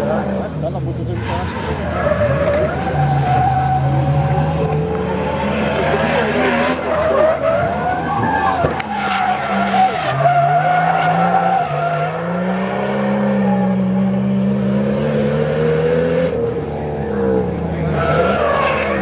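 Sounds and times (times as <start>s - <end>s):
car engine at high revs: 0.0s - 19.0s.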